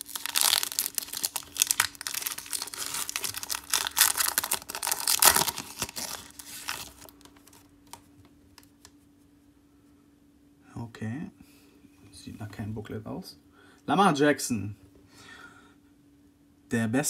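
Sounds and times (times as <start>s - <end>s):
wrapper tearing and crinkling: 0.0s - 8.0s.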